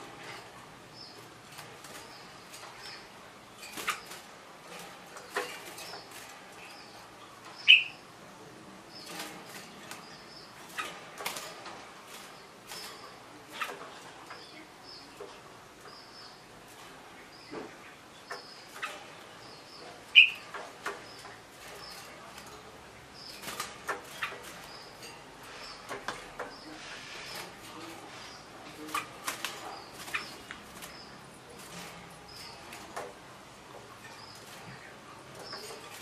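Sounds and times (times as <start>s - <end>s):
bird chirps: 5.3s - 8.1s, 17.2s - 22.5s.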